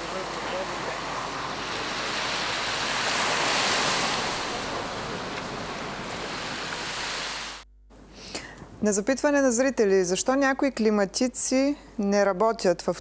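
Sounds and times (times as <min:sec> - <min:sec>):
waves washing onto sand: 0:00.0 - 0:07.6
wind: 0:00.0 - 0:07.6.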